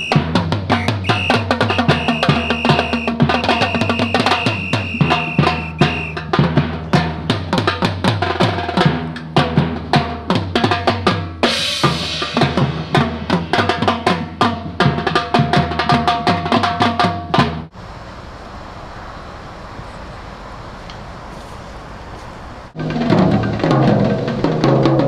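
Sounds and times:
percussion ensemble drumming: 0:00.0 - 0:17.7, 0:22.8 - 0:25.0
steady outdoor hiss: 0:00.0 - 0:25.0
cymbal crash: 0:11.4 - 0:14.0.

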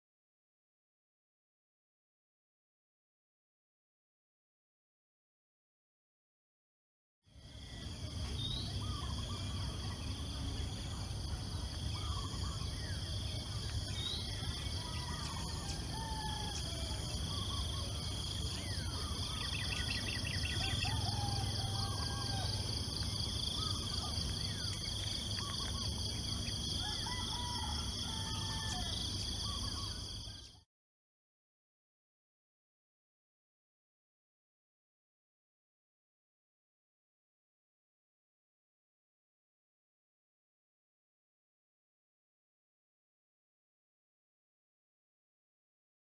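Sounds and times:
insects droning: 0:07.3 - 0:30.6
bird trill: 0:11.9 - 0:30.6.

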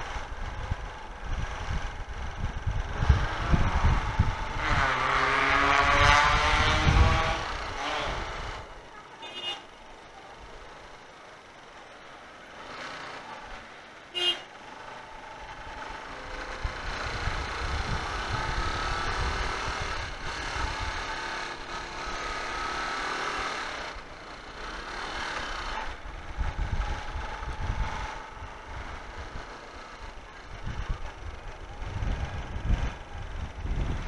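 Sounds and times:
wind rumble on microphone: 0:00.0 - 0:08.8, 0:15.6 - 0:22.3, 0:25.5 - 0:34.0
motorcycle engine running: 0:00.0 - 0:11.0, 0:14.2 - 0:34.0.

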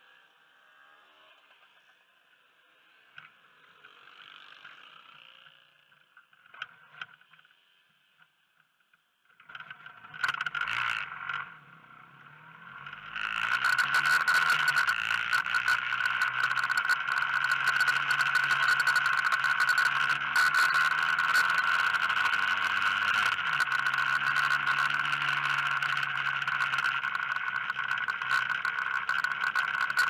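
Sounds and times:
motor scooter engine: 0:12.4 - 0:30.0.

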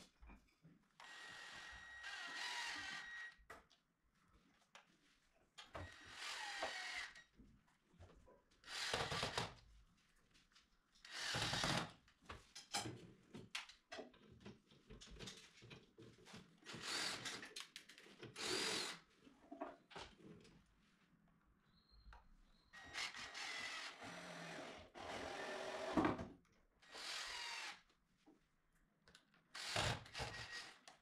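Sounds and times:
cordless drill whining: 0:01.0 - 0:03.4, 0:05.8 - 0:07.2, 0:08.7 - 0:09.5, 0:16.8 - 0:17.4, 0:18.4 - 0:19.0, 0:22.8 - 0:26.0, 0:26.9 - 0:27.8, 0:29.6 - 0:30.8.

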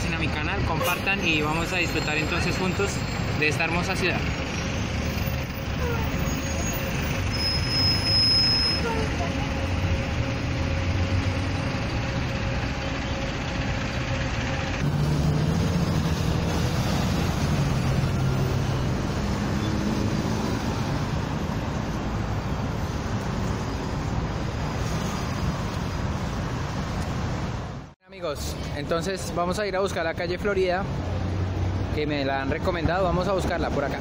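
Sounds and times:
city traffic: 0:00.0 - 0:34.0
low engine drone: 0:04.2 - 0:22.0.

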